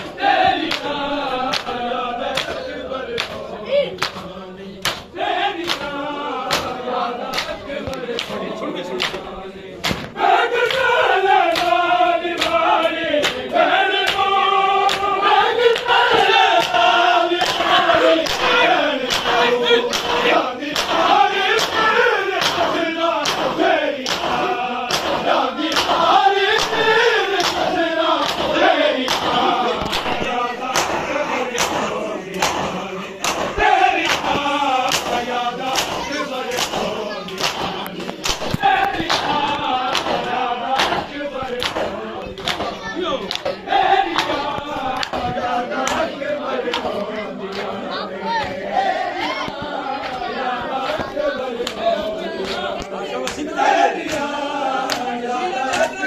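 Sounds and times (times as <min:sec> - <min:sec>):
men chanting in chorus: 0:00.0 - 0:56.0
hands slapping bare chests: 0:00.4 - 0:47.8, 0:49.2 - 0:56.0.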